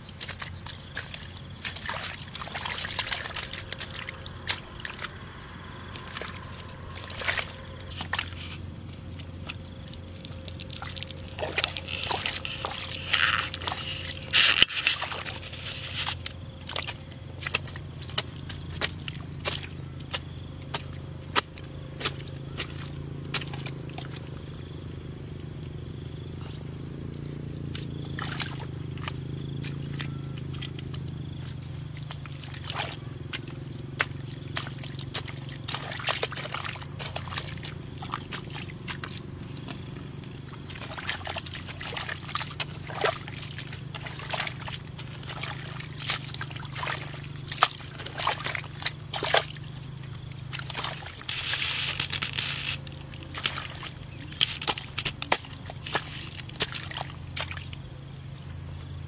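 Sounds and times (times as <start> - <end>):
mud squelching and water sloshing: 0.0 - 59.0
steady low hum: 0.0 - 59.0
digging tool chopping into mud: 16.7 - 24.1, 53.3 - 57.6.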